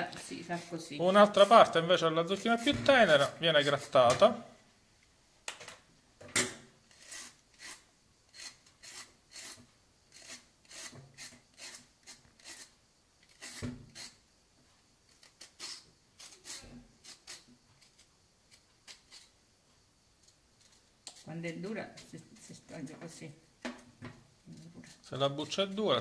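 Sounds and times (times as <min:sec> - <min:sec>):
knife scraping gourd skin: 0:00.4 - 0:04.0, 0:06.9 - 0:14.2, 0:15.1 - 0:19.4, 0:20.2 - 0:22.7, 0:24.4 - 0:25.9.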